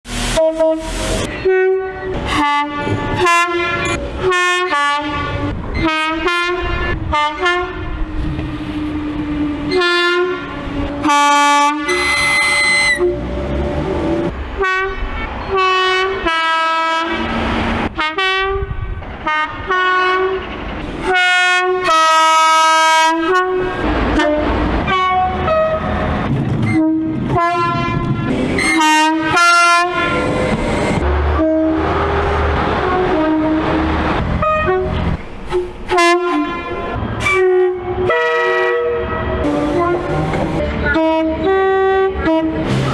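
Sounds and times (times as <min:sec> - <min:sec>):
train running noise: 0:00.0 - 0:42.9
two-tone train horn blasts: 0:00.1 - 0:13.5, 0:14.6 - 0:17.3, 0:18.0 - 0:20.4, 0:21.0 - 0:30.6, 0:31.3 - 0:42.9
high whistle-like tone: 0:11.9 - 0:13.1.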